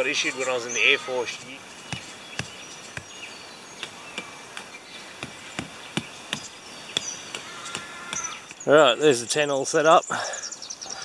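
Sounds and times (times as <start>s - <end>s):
faint insects: 0.0s - 11.0s.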